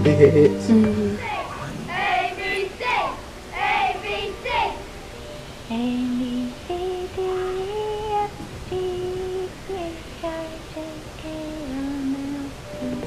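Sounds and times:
child singing slow tune: 1.9s - 5.0s, 5.7s - 13.0s.

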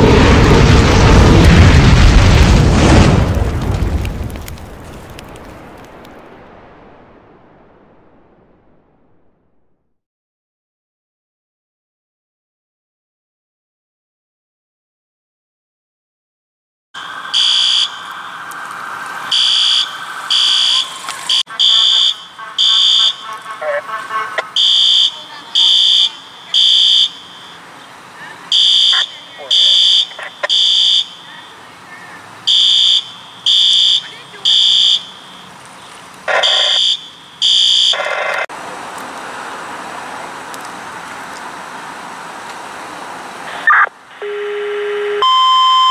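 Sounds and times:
fire alarm horn buzzing: 17.0s - 18.2s, 19.3s - 27.8s, 28.5s - 31.6s, 32.5s - 35.6s, 36.3s - 38.1s, 43.6s - 45.9s
traffic noise: 17.0s - 45.9s.

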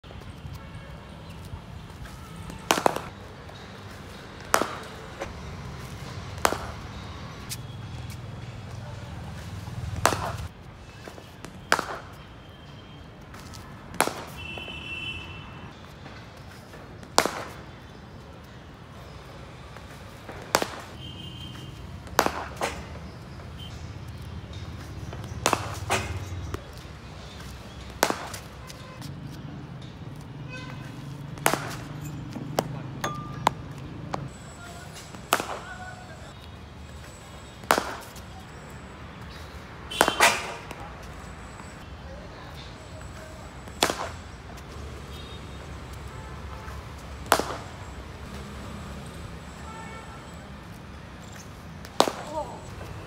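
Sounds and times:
cricket bat striking ball: 2.5s - 3.6s, 4.4s - 5.4s, 6.4s - 7.6s, 10.0s - 10.5s, 11.7s - 12.2s, 13.9s - 14.7s, 17.0s - 17.7s, 20.4s - 23.1s, 24.6s - 26.6s, 27.7s - 28.8s, 31.4s - 34.4s, 35.1s - 36.0s, 37.6s - 38.2s, 39.9s - 40.8s, 43.6s - 44.2s, 47.2s - 47.8s, 51.9s - 52.6s
ball knocking on bat and pitch: 10.0s - 10.5s, 31.4s - 34.3s.

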